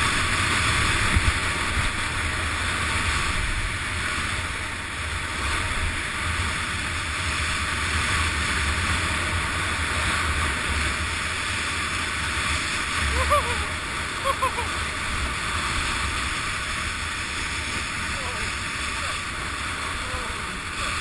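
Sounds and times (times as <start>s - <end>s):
skis hissing on packed snow: 15.7s - 21.0s.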